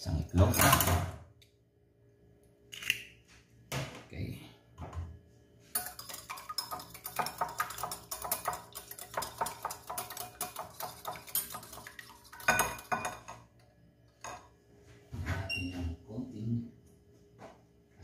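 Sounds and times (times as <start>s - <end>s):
whisk beating egg in glass bowl: 5.8s - 13.5s.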